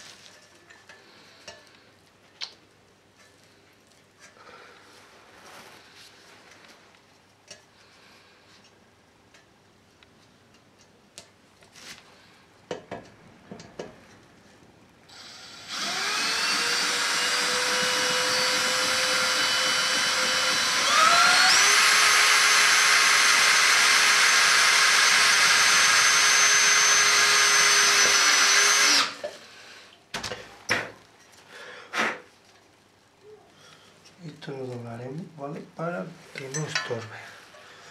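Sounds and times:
cordless drill driving screw: 0:15.1 - 0:29.2.

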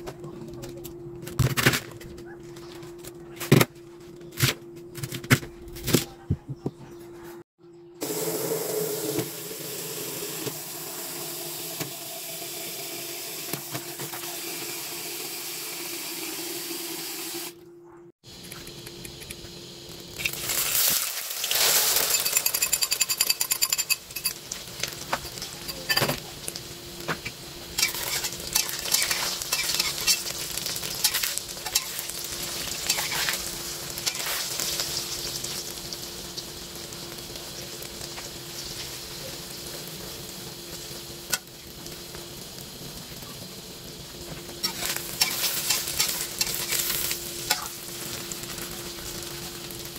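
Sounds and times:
egg frying in hot oil: 0:18.2 - 0:49.9
metal spatula scraping wok: 0:21.5 - 0:24.5, 0:27.8 - 0:35.0, 0:44.6 - 0:47.7.

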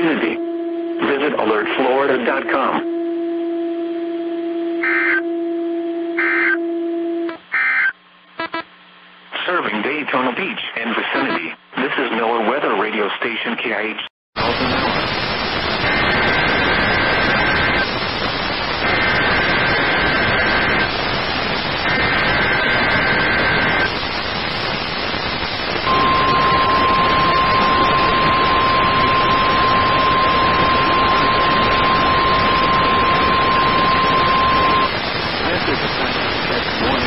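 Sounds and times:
steady warning alarm tone: 0:00.0 - 0:08.6, 0:25.8 - 0:35.0
warbling data tones: 0:04.8 - 0:05.4, 0:06.2 - 0:06.7, 0:25.6 - 0:37.0
static hiss: 0:14.4 - 0:37.0.

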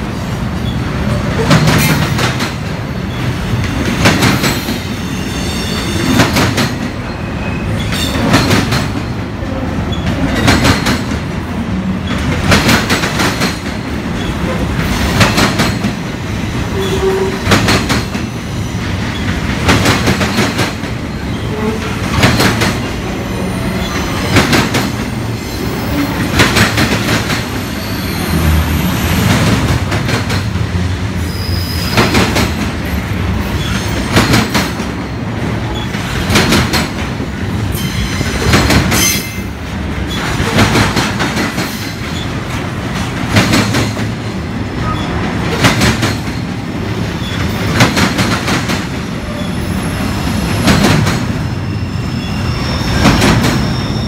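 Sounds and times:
train rumbling past: 0:00.0 - 0:54.0
wheels clacking over rail joints: 0:31.9 - 0:49.4.

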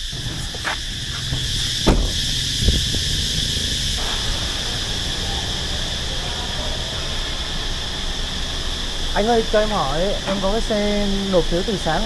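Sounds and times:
low rumble: 0:00.0 - 0:10.3
high hiss: 0:00.0 - 0:12.0
dull thumps: 0:00.1 - 0:03.0.

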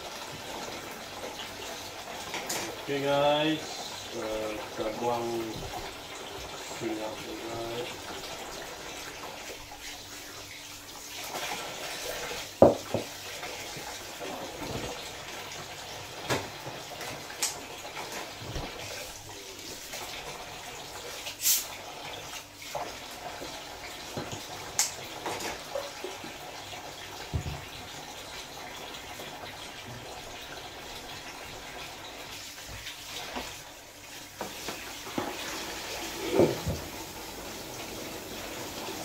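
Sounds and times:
tap water running into sink: 0:00.0 - 0:39.0
knocks against sink: 0:12.6 - 0:13.1, 0:27.3 - 0:27.7, 0:36.2 - 0:36.9.

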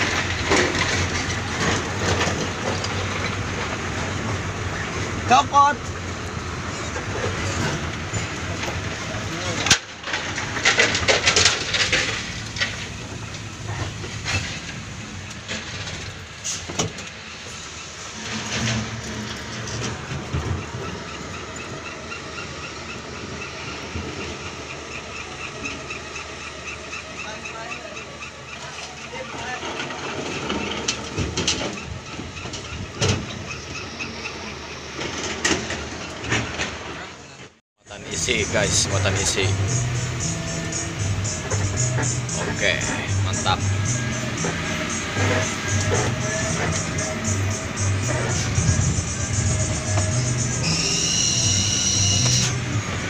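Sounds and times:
sharp knocks and clanks: 0:00.0 - 0:04.9, 0:06.9 - 0:17.6, 0:28.6 - 0:34.3, 0:38.4 - 0:50.6
diesel engine running: 0:00.0 - 0:53.0.

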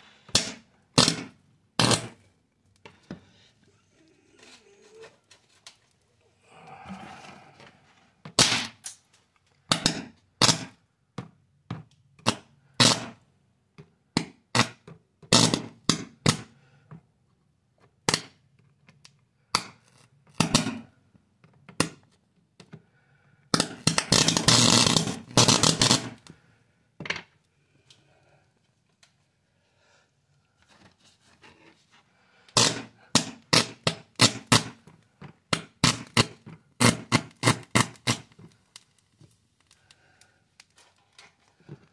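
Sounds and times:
crackling electric arc: 0:23.9 - 0:26.2
electric sparks cracking: 0:23.9 - 0:26.2.

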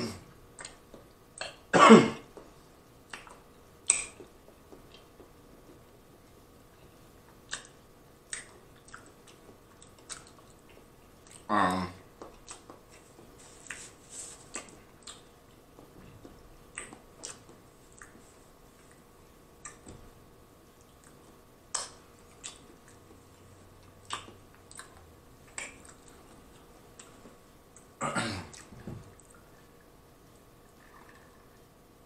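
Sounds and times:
throaty vocal sound: 0:00.0 - 0:00.3, 0:11.5 - 0:12.0
person chewing and smacking lips: 0:00.5 - 0:01.7, 0:02.3 - 0:20.1, 0:20.8 - 0:29.6.

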